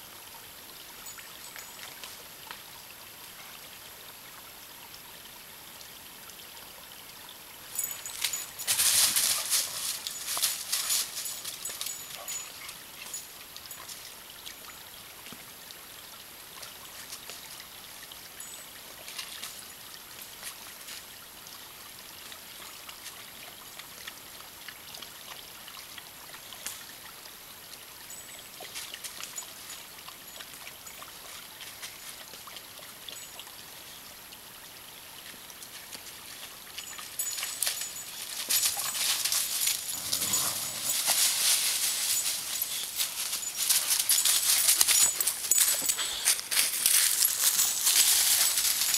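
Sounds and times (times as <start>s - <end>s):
stream trickling: 0.0s - 48.9s
footsteps crunching dry leaves: 37.4s - 48.9s.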